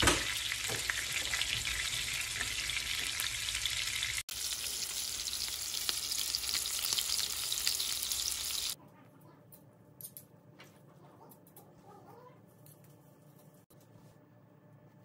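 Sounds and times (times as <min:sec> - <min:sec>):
patties sizzling in frying pan: 0:00.0 - 0:08.8.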